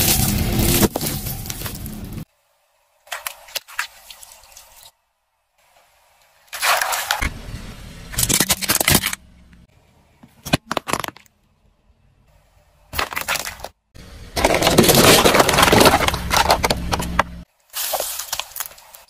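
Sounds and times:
car tyre crushing objects: 0.0s - 2.3s, 8.1s - 9.6s, 12.9s - 19.0s.

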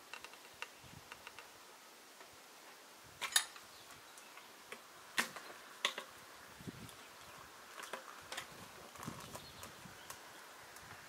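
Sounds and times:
log turner clicks: 0.0s - 1.6s.

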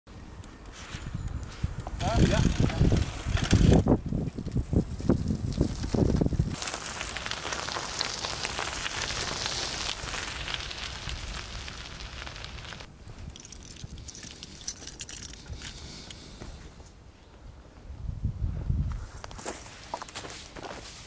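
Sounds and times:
bicycle tyres on gravel: 0.7s - 16.4s, 18.9s - 21.0s
keys jangling: 13.3s - 15.8s.

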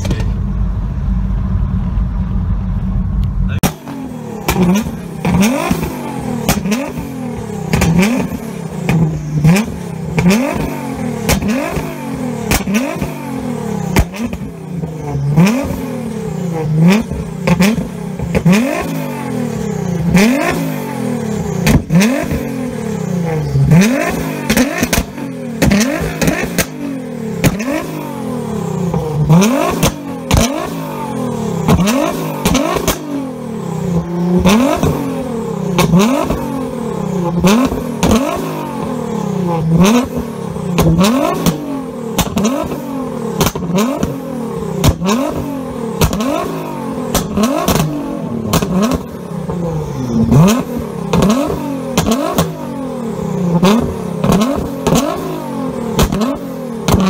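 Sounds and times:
car engine revving: 0.0s - 57.0s
exhaust pops and crackles: 7.7s - 10.7s, 12.5s - 13.1s, 21.6s - 22.4s, 24.0s - 26.8s, 27.4s - 27.9s, 31.7s - 33.0s, 39.8s - 42.8s, 43.4s - 44.2s, 44.8s - 46.5s, 47.1s - 49.6s, 50.6s - 52.6s, 55.9s - 57.0s.

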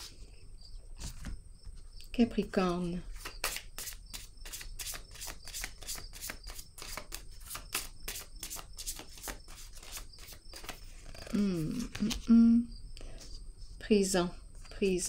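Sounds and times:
cards being shuffled: 3.1s - 12.4s.

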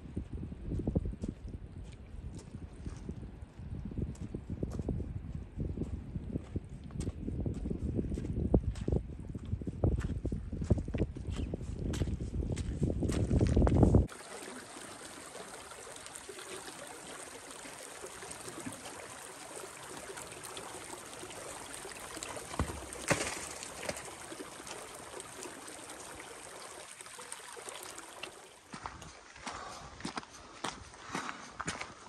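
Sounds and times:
meltwater stream running: 14.1s - 30.6s.

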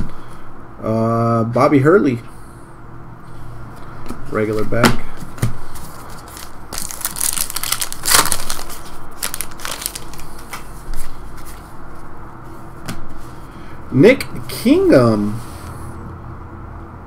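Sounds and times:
card pack wrapper crinkling: 6.0s - 10.6s.

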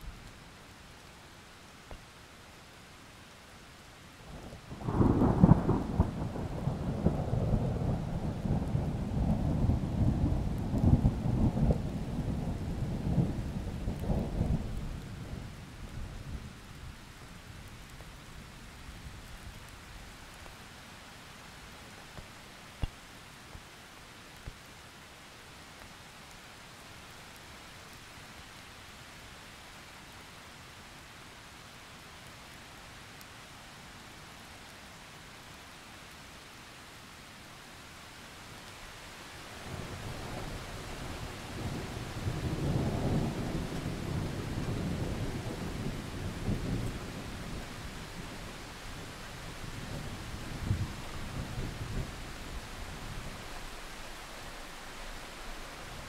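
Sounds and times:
rain hissing: 0.0s - 56.0s
thunder rumbling: 4.7s - 15.6s
faint clicks: 22.1s - 23.6s.

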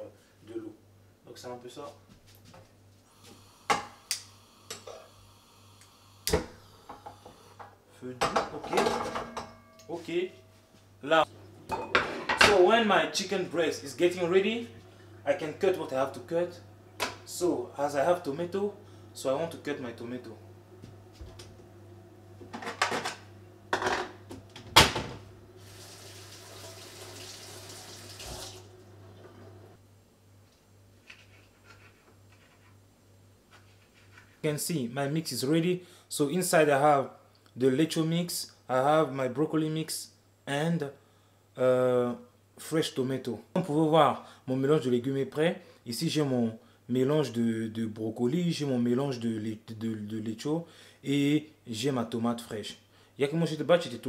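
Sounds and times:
dishes clattering: 8.2s - 9.8s, 11.7s - 12.6s
kitchen tap running into sink: 25.6s - 28.7s.

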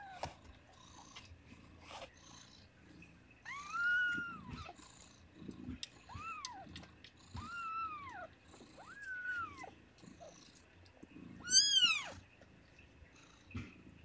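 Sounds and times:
faint cat purr: 0.0s - 14.0s
kitten crying: 11.4s - 12.2s.

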